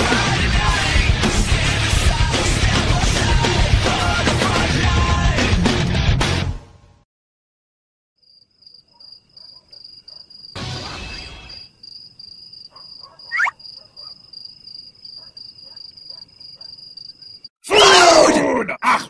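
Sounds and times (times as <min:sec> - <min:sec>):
crickets chirping: 0:08.2 - 0:17.5
sharp rising whistle: 0:13.3 - 0:13.5.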